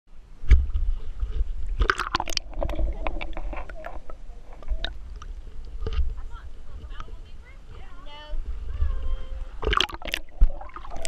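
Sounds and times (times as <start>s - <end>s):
water sloshing and gurgling: 0.2s - 11.0s
splashes and clicks: 0.4s - 6.2s, 9.6s - 11.0s.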